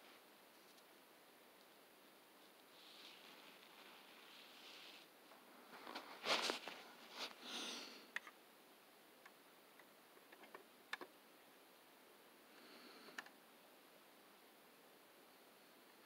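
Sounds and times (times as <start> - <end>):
rustle of handling: 2.4 - 7.4.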